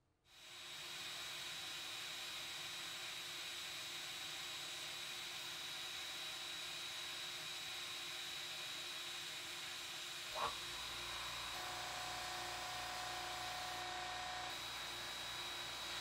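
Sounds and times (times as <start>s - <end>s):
faint steady whistle: 10.4s - 16.0s.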